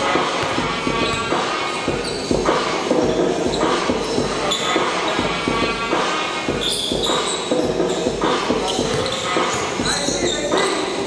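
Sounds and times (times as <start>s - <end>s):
basketball dribbling on court: 0.4s - 1.3s.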